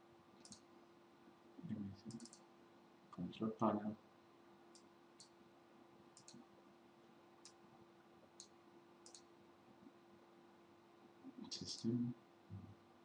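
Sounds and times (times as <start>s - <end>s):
faint steady hum: 0.0s - 13.0s
computer mouse clicks: 0.4s - 0.7s, 2.1s - 2.5s, 4.7s - 5.3s, 6.2s - 6.5s, 7.4s - 7.6s, 8.4s - 9.3s.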